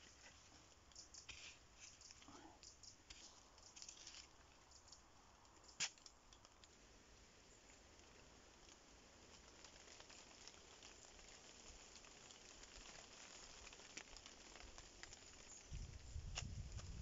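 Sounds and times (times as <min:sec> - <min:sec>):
faint woodland ambience: 0:00.0 - 0:17.0.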